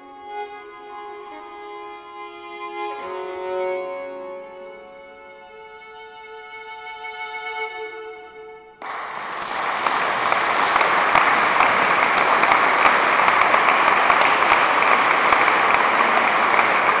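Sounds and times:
audience applauding: 8.8 - 17.0.

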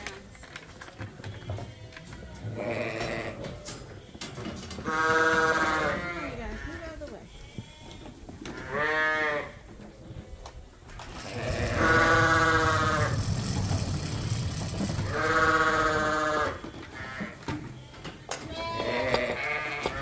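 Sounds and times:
lambs bleating: 2.5 - 3.4, 4.0 - 9.6, 11.2 - 13.3, 15.0 - 20.0.

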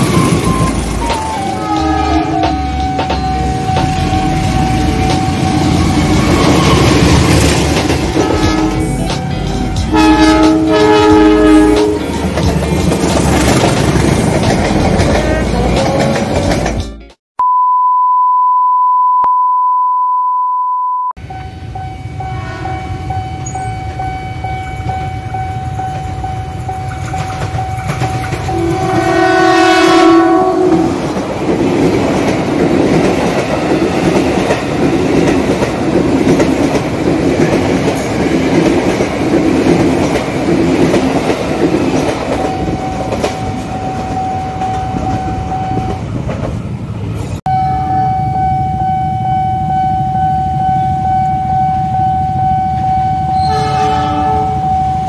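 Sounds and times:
train wheels clattering: 0.0 - 10.7, 11.8 - 16.9, 24.8 - 28.7
level crossing warning tone: 0.0 - 12.6, 17.4 - 30.9, 42.1 - 46.1, 47.5 - 55.0
train horn: 1.6 - 2.7, 8.2 - 12.3, 22.2 - 23.6, 28.5 - 31.1, 53.3 - 54.7
electronic beep: 17.4 - 22.1.

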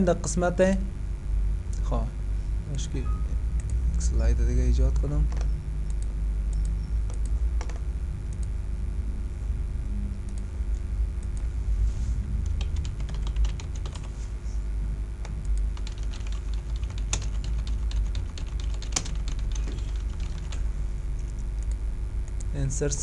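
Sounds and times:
steady low hum: 0.0 - 23.0
loud keyboard clicks: 7.1 - 7.8, 12.5 - 14.0, 15.4 - 20.6
typing on keyboard: 12.5 - 14.1, 15.5 - 20.6.

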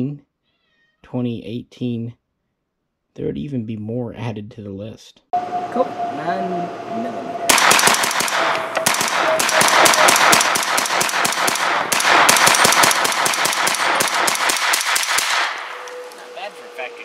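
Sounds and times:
rapid gunfire: 7.5 - 15.8.

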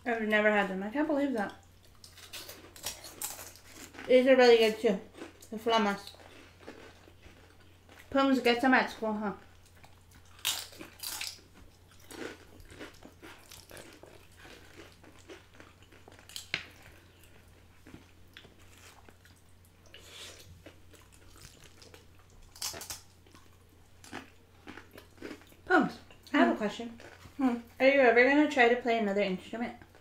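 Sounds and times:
crunching and chewing corn snacks: 1.8 - 8.2, 9.4 - 26.2, 26.9 - 27.6.

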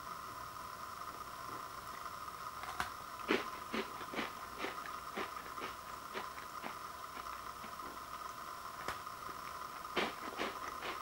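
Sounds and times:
person chewing crunchy cookie: 3.2 - 8.0, 9.3 - 11.0.

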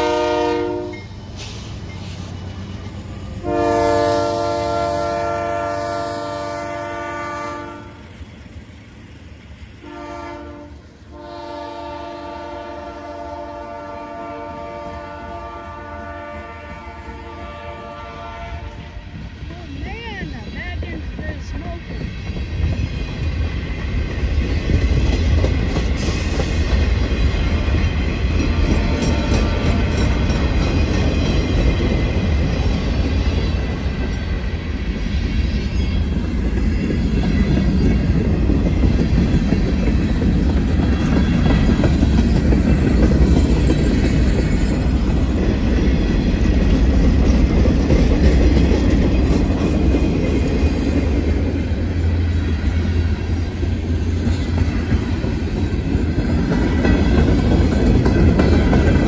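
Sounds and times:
train wheels rumbling on rail: 0.0 - 59.0
wheels clicking over rail joints: 53.7 - 59.0.

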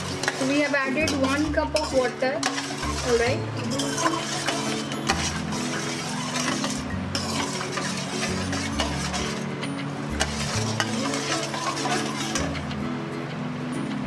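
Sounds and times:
ladle scraping metal pan: 0.0 - 12.8
background music: 0.0 - 14.0
light sizzling: 0.0 - 14.0.

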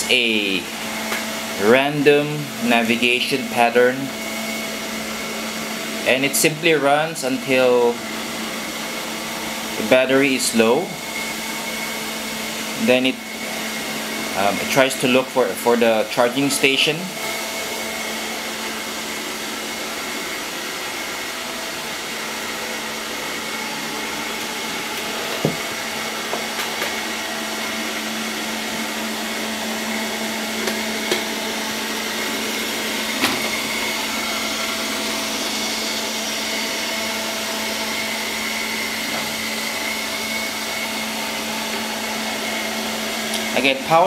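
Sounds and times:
robot vacuum whirring: 18.4 - 43.5.

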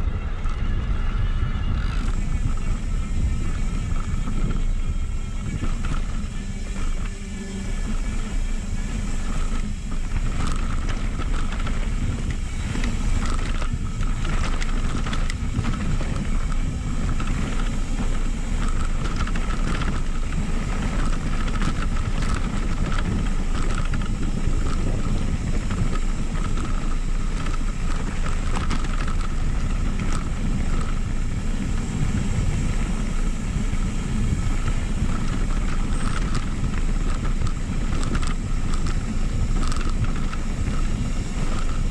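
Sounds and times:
bike tyres rolling on dirt: 0.0 - 41.9
faint high whine: 0.0 - 41.9
wind rushing over microphone: 0.0 - 41.9.

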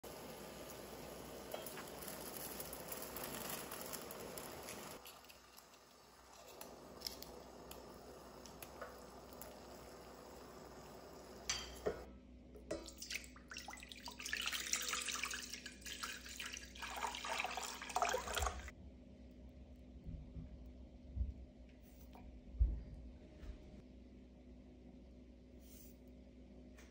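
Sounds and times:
water pouring into a steel pot: 0.0 - 11.6, 12.7 - 18.7
faint hiss: 0.0 - 12.1.

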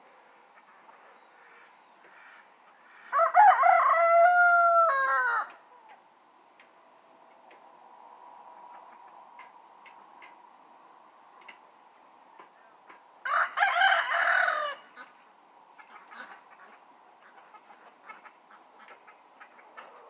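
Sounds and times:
chickens clucking: 0.1 - 3.2, 8.4 - 13.1, 14.7 - 20.0
rooster crowing: 3.1 - 5.7, 13.2 - 15.0.

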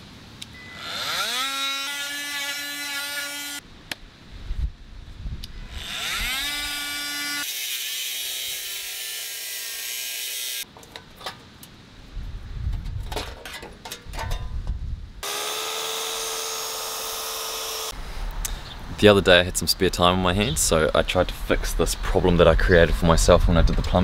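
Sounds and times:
high-pitched power tool: 0.6 - 3.6, 5.7 - 10.6, 15.2 - 18.0
oscillating multi-tool running: 0.7 - 3.6, 5.8 - 10.6, 15.2 - 18.0.

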